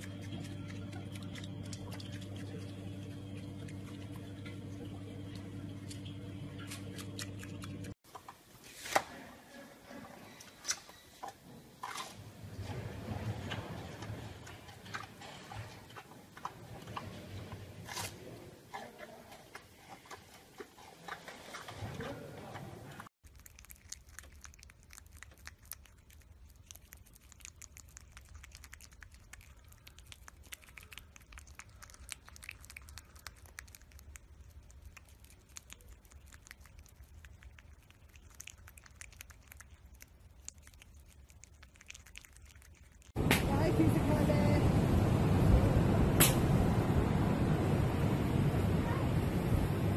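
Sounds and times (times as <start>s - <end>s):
panda chewing bamboo: 0.0s - 4.3s, 13.6s - 43.2s
low hum: 0.0s - 8.0s, 42.6s - 49.9s
prairie dog nibbling food: 0.0s - 8.0s, 23.2s - 43.2s.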